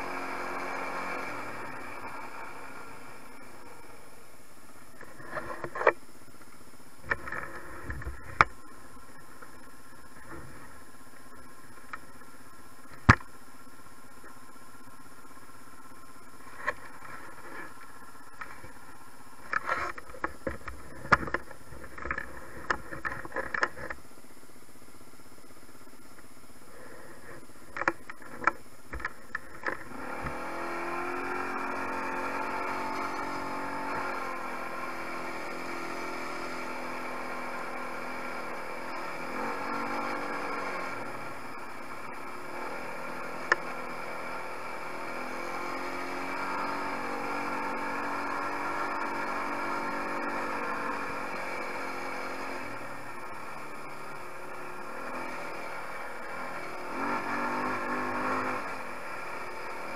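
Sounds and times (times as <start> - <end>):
quad engine running: 0.0 - 59.9
clicks and knocks from controls: 19.5 - 24.0, 27.7 - 30.4.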